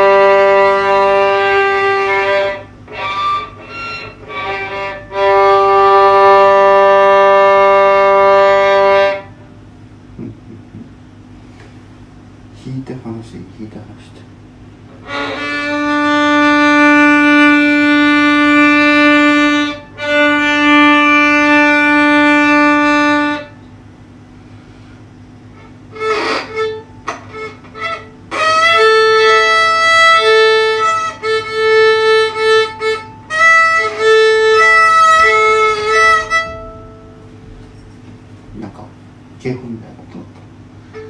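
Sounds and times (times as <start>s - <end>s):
bowed violin: 0.0s - 9.3s, 15.0s - 23.6s, 25.6s - 38.0s.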